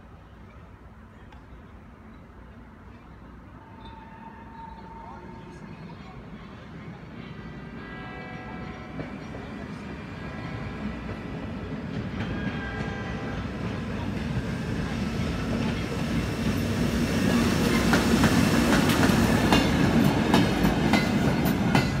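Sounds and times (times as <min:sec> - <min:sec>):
wheels clacking over rail joints: 0:11.0 - 0:22.0.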